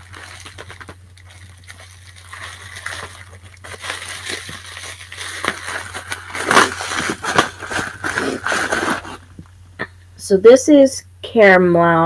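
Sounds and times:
bubble wrap crinkling: 0:00.0 - 0:09.6.

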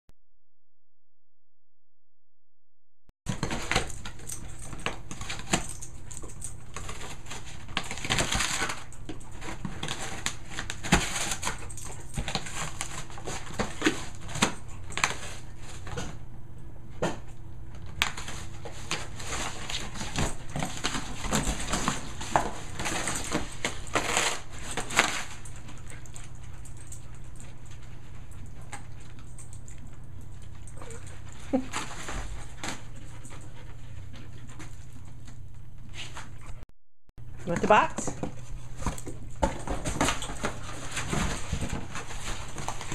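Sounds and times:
dog chewing cardboard: 0:18.9 - 0:26.0.

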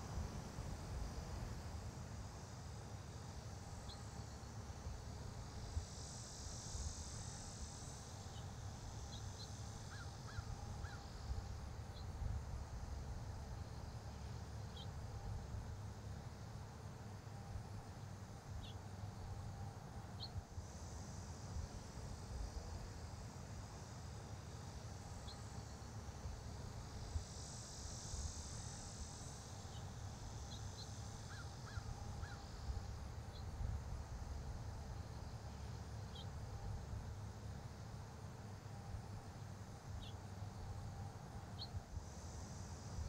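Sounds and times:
soft high hiss: 0:00.0 - 0:43.0.

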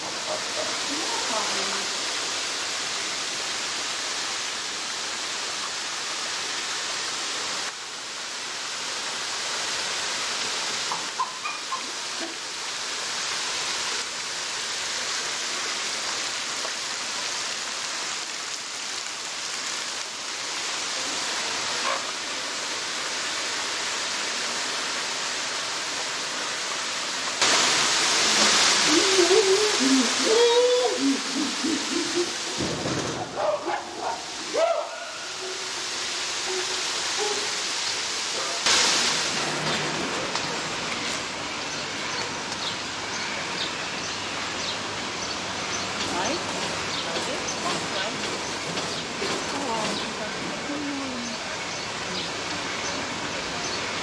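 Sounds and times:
rushing water: 0:00.0 - 0:54.0
short wavering calls: 0:28.7 - 0:32.7.

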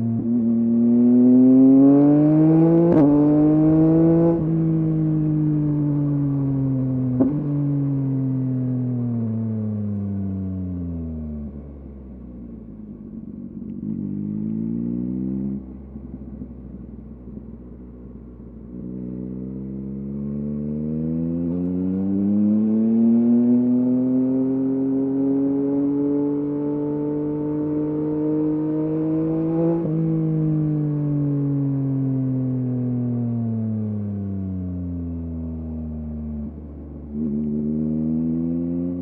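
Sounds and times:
motorcycle engine revving: 0:00.0 - 0:08.6, 0:13.1 - 0:17.8, 0:18.6 - 0:32.8, 0:35.5 - 0:39.0.

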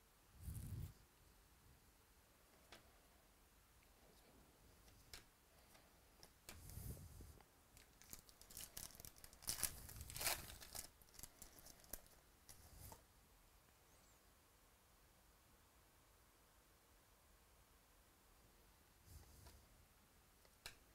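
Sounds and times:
foil wrapper tearing and crinkling: 0:07.8 - 0:12.1.

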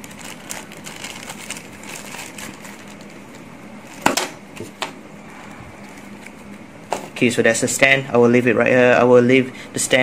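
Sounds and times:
plastic packaging crinkling: 0:00.0 - 0:04.0.

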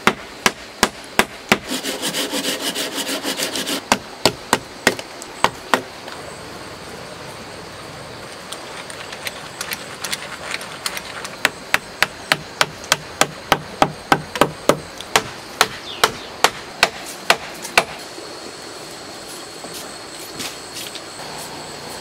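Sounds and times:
hatchet knocking wood on wood: 0:00.0 - 0:01.7, 0:03.9 - 0:05.9, 0:11.4 - 0:18.0.

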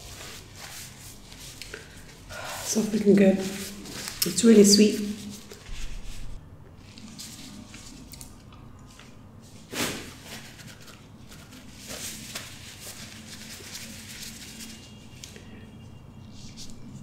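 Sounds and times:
tissue swish: 0:00.0 - 0:01.6, 0:03.4 - 0:06.4, 0:09.6 - 0:15.0
paper napkin rustling: 0:00.0 - 0:08.1, 0:09.0 - 0:15.1.

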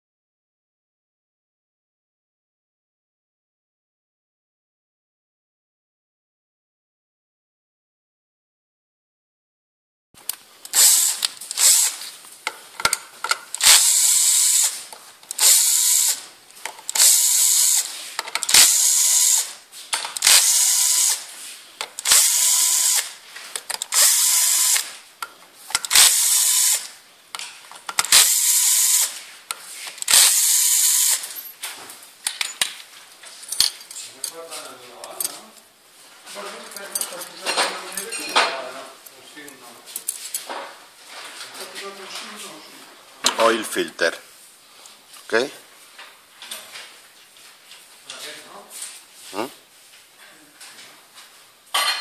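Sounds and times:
ratchet wrench clicking: 0:10.6 - 0:12.0, 0:12.8 - 0:14.7, 0:15.3 - 0:24.9, 0:25.7 - 0:26.9, 0:27.9 - 0:29.1, 0:30.0 - 0:31.4.

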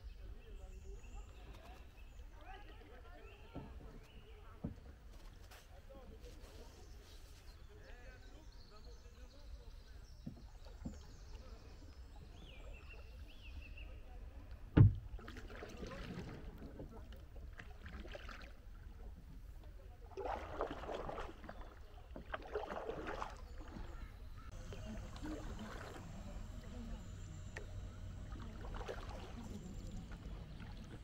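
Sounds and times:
kayak paddle splashing: 0:09.3 - 0:31.0.

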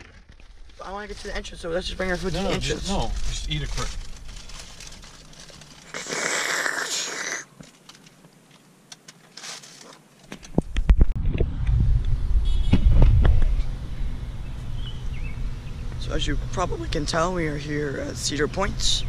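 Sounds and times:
straw slurping drink: 0:05.8 - 0:07.5
wind buffeting microphone: 0:10.5 - 0:17.4.

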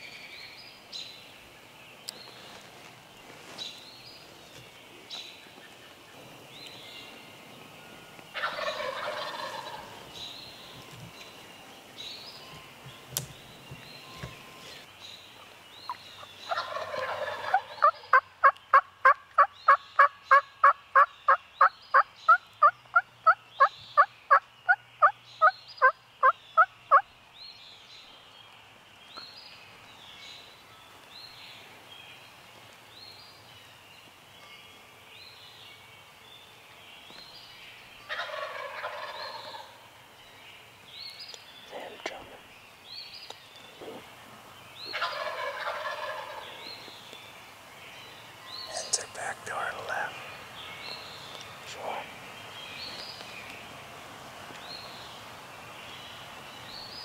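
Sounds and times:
turkey gobbling: 0:08.4 - 0:10.0, 0:16.2 - 0:21.1, 0:38.1 - 0:39.8, 0:44.9 - 0:46.5.

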